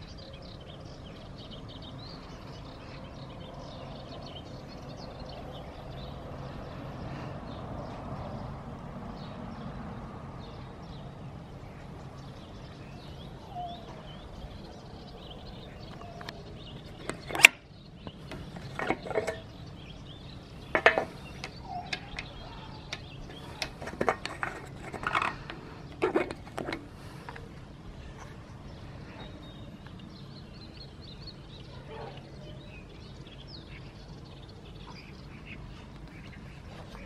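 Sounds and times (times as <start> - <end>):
clicks and knocks from handling: 15.9 - 19.6, 20.7 - 27.5.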